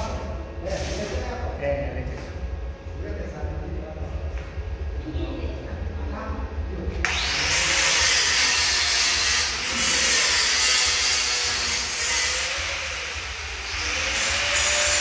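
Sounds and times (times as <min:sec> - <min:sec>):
angle grinder grinding metal: 0:07.1 - 0:15.0.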